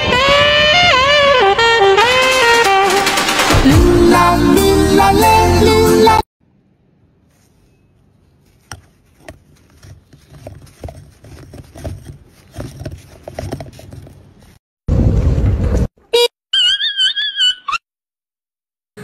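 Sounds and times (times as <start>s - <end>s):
snow crunching and scraping: 7.3s - 14.6s.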